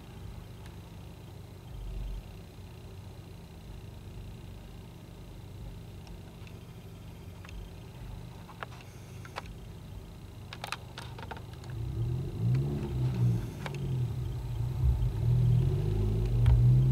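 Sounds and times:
subwoofer deep bass: 11.7 - 16.9.

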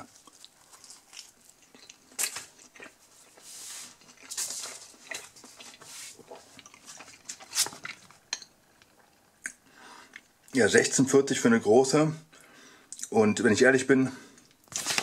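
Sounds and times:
paper menu crinkling: 14.7 - 15.0.

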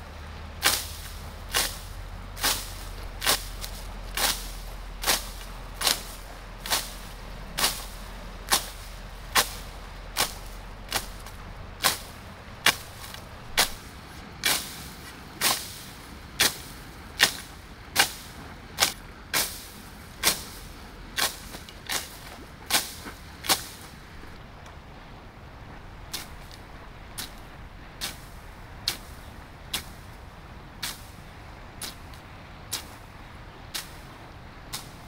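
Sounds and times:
pole swishing into grass: 0.6 - 24.0, 28.0 - 30.1, 30.8 - 31.2, 31.8 - 33.1, 33.7 - 34.1, 34.7 - 35.0.

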